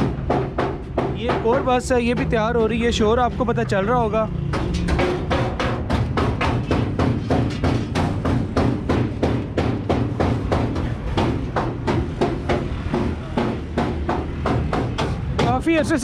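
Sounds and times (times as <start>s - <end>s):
rapid hammering on metal: 0.0s - 3.5s, 4.2s - 16.0s.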